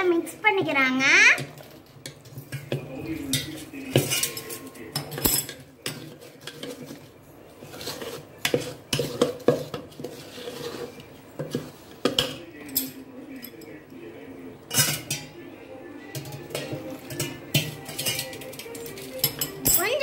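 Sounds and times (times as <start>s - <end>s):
spoon scraping metal bowl: 2.0s - 12.7s, 16.2s - 19.6s.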